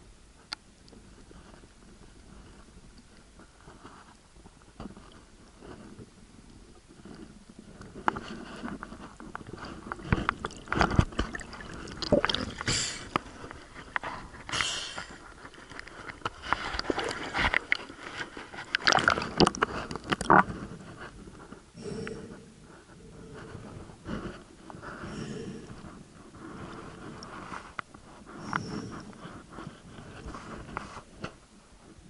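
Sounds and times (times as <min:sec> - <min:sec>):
underwater crackling and knocks: 0:07.0 - 0:21.2.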